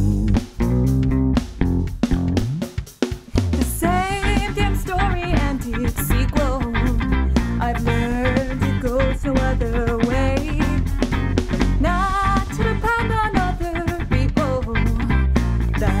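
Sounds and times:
electric bass: 0.0 - 16.0
electric guitar: 0.0 - 16.0
woman singing: 3.6 - 10.9, 11.8 - 16.0.

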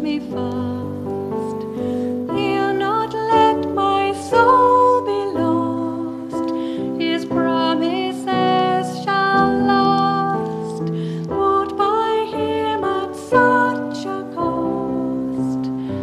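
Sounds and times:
keyboard accompaniment: 0.0 - 16.0
woman singing worship song: 0.0 - 16.0.

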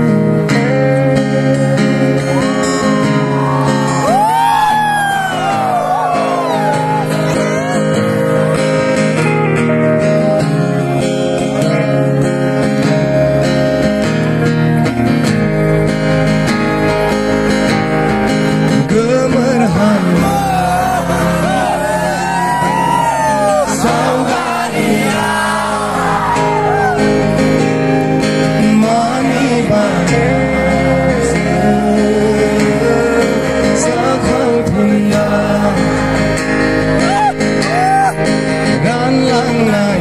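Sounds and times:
acoustic guitar: 0.0 - 40.0
electric guitar: 0.0 - 40.0
man singing: 18.7 - 27.0, 28.4 - 36.4, 38.6 - 40.0.

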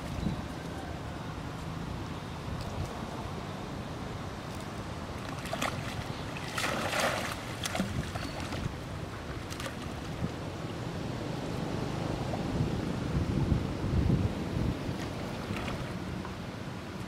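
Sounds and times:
low wind rumble on microphone: 0.0 - 17.0
small splashes of swimming: 4.5 - 10.3, 15.0 - 16.0
monkey plunging into water: 5.4 - 8.7.

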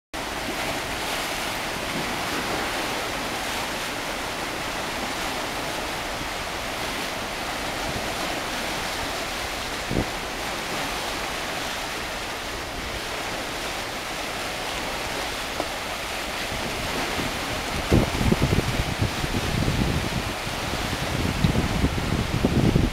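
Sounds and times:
waves splashing over rocks: 0.2 - 22.9
wind buffeting microphone: 3.9 - 13.4, 16.0 - 22.9.

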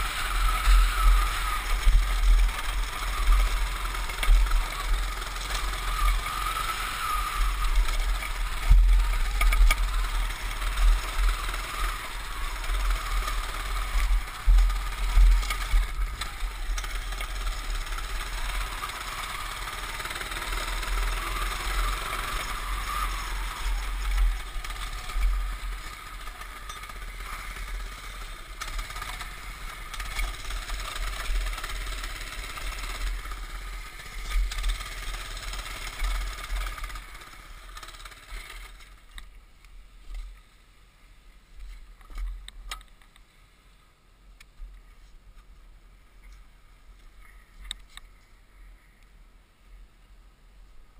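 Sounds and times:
small single-cylinder engine running: 0.0 - 39.0.

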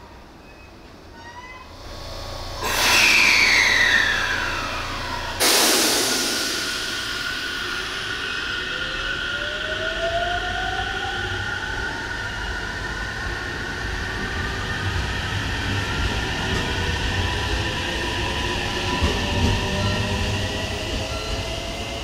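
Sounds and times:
electric train motor whine: 1.7 - 8.0
sudden loud rush: 1.8 - 9.2.

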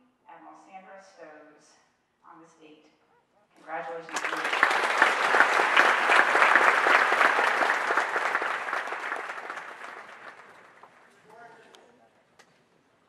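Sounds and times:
audience applauding: 3.7 - 11.3.

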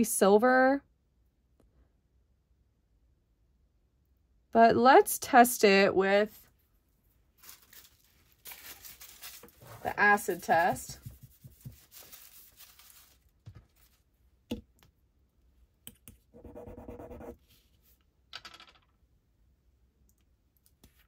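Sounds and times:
faint handling noise: 6.3 - 14.1.

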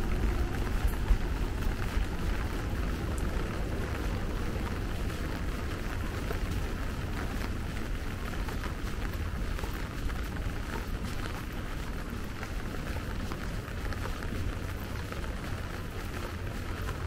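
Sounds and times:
low rumble: 0.0 - 8.0
rain on wet paving: 0.0 - 17.0.

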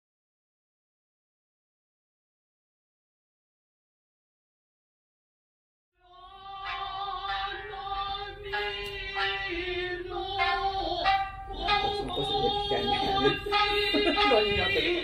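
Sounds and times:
high voice singing: 6.0 - 15.0
music: 6.0 - 15.0.

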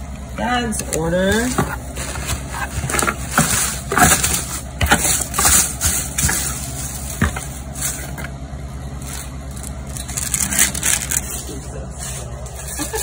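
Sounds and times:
steady low hum: 0.0 - 13.0
paper rustling in cardboard box: 1.4 - 8.1.

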